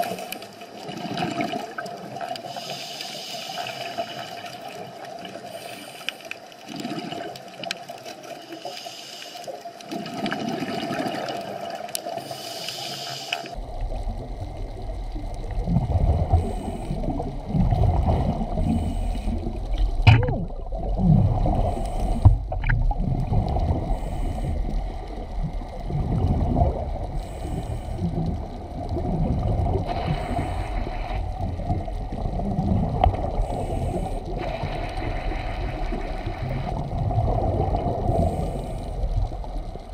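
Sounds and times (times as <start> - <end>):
muffled underwater water noise: 0.0 - 39.9.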